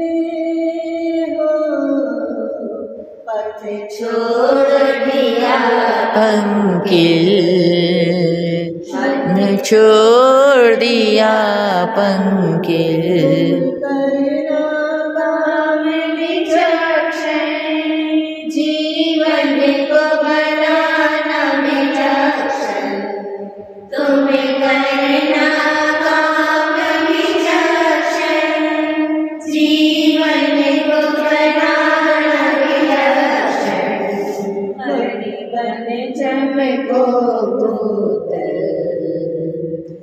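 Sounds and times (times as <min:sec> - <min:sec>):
voices singing devotional chant: 0:00.0 - 0:40.0.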